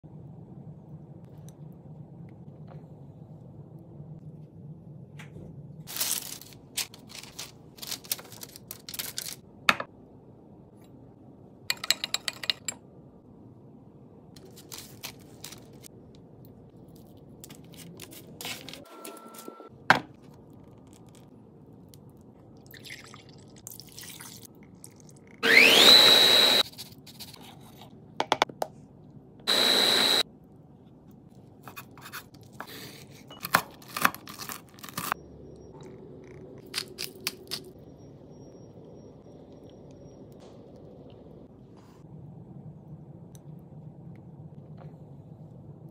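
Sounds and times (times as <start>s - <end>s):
food being handled: 5.9s - 9.4s, 14.4s - 15.9s
paper rustling: 5.9s - 9.4s, 14.4s - 15.9s, 17.4s - 19.5s
food processor motor whining: 25.4s - 26.6s, 29.5s - 30.2s.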